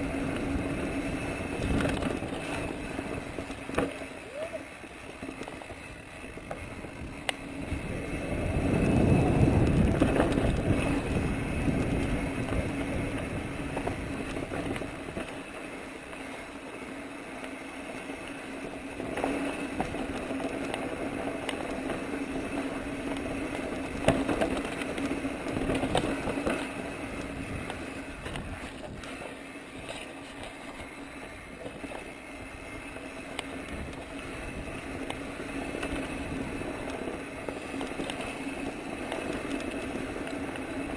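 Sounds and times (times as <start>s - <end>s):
bike clicks and rattles: 0.0s - 40.9s
bike tyres on gravel: 0.0s - 40.9s
wind buffeting microphone: 6.0s - 15.2s.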